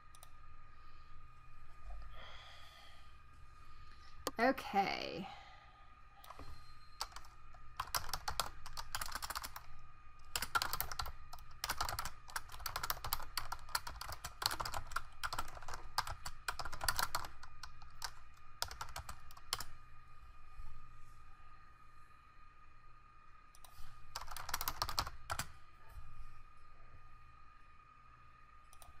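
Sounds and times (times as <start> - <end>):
faint steady hum: 0.0 - 29.0
typing on computer keyboard: 7.0 - 19.7, 23.6 - 25.5.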